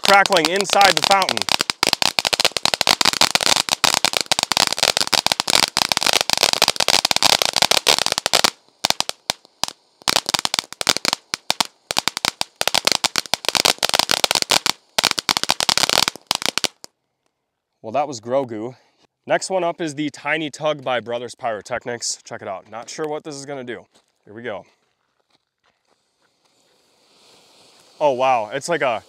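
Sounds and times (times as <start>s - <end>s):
firework fountain crackling: 0.0s - 16.9s, 26.0s - 29.0s.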